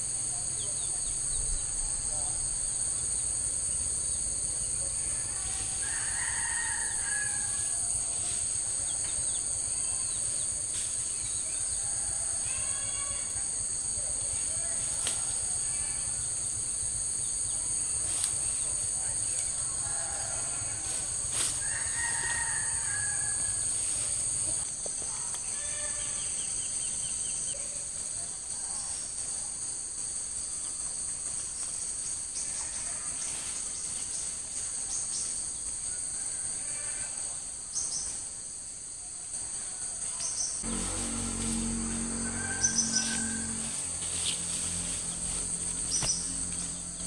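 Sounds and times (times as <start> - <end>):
insect chorus drone: 0.0 - 47.0
low hum: 40.6 - 47.0.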